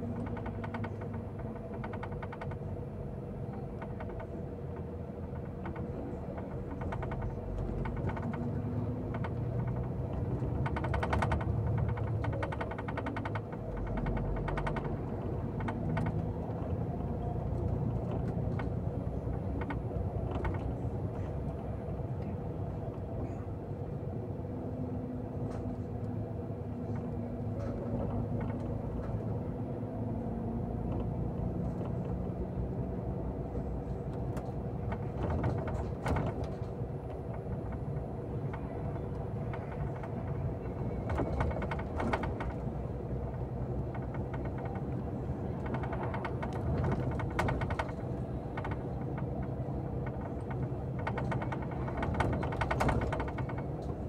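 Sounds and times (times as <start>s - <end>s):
bus engine drone: 0.0s - 54.0s
rattles and clicks: 3.7s - 21.5s, 26.8s - 29.4s, 33.5s - 54.0s.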